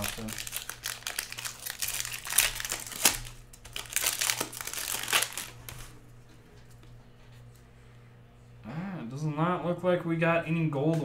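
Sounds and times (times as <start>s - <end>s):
packaging crinkling: 0.0s - 6.0s.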